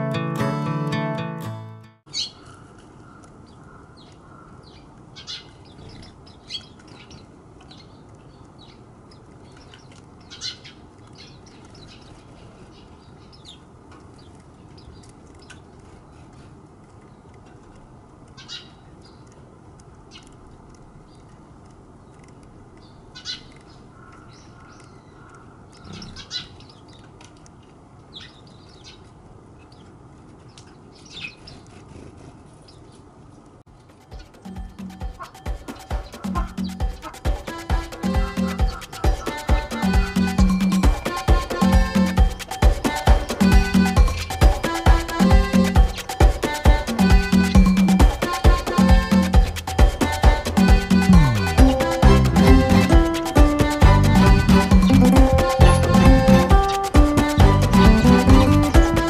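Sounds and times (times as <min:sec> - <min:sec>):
small birds chirping: 0:02.1 - 0:59.0.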